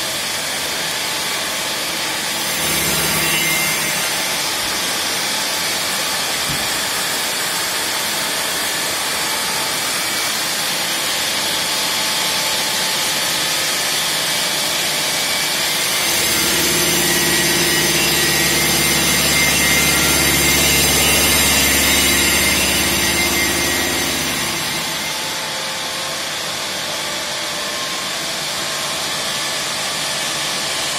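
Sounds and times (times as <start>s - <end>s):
stone grinding machine hiss: 16.0s - 25.1s.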